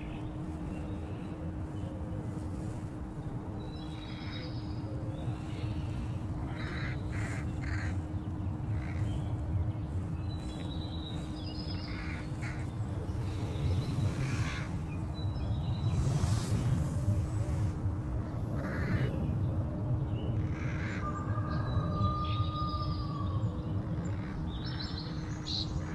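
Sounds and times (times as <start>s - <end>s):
faint hum: 0.0s - 25.9s
harsh bird calls: 3.8s - 16.1s.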